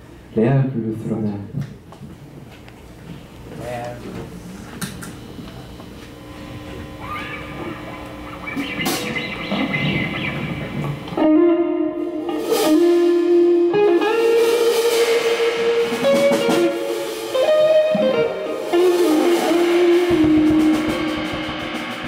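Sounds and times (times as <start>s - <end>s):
electric guitar blues lead: 5.2s - 22.0s
live blues band: 6.6s - 22.0s.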